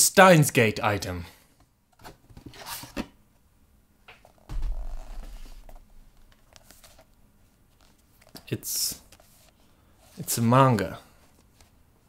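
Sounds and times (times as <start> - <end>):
book handling rustles and clicks: 4.2 - 10.2
low bump: 4.5 - 6.8.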